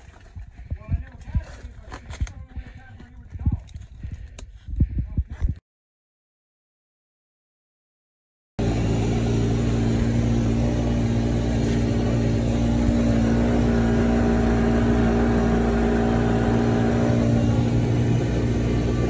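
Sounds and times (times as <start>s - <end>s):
utility vehicle engine running: 8.6s - 19.0s.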